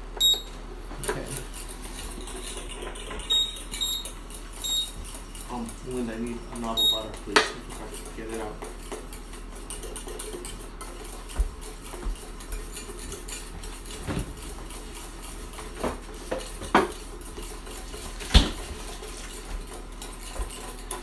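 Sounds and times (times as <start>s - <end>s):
metal whisk scraping a saucepan: 3.7s - 21.0s.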